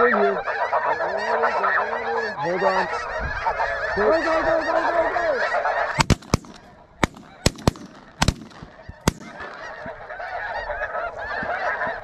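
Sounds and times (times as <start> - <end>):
geese calling: 0.0 - 12.0
shotgun shots: 6.0 - 9.9.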